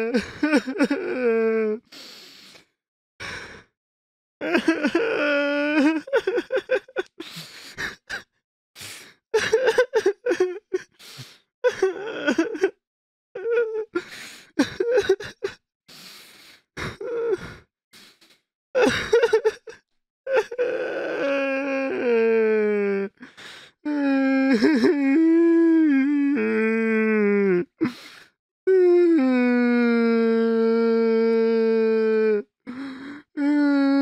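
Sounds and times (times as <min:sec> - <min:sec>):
person sobbing and wailing: 0:00.0 - 0:01.9, 0:04.4 - 0:07.2, 0:09.4 - 0:11.0, 0:11.7 - 0:12.8, 0:14.6 - 0:15.6, 0:16.8 - 0:17.6, 0:18.8 - 0:23.3, 0:23.9 - 0:28.0, 0:28.7 - 0:34.0.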